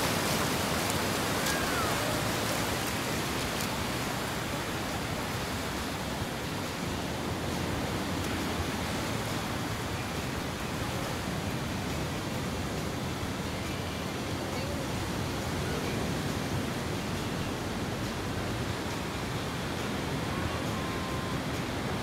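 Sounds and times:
ocean surf breaking: 0.0s - 22.0s.

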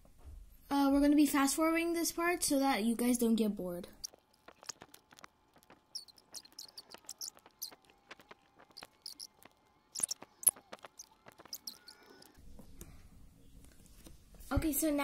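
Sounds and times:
colored pencil scratching on paper: 10.0s - 12.4s.

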